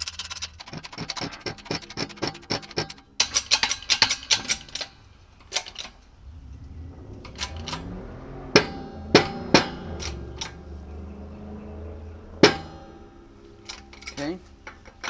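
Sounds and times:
metal discs clinking in plastic case: 0.0s - 6.0s.

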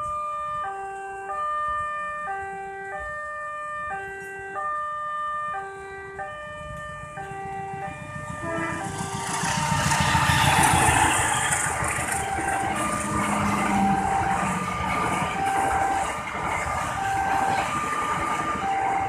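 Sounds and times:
passing train rumble: 5.7s - 19.0s
level crossing alarm two tones: 11.0s - 16.3s, 16.9s - 19.0s.

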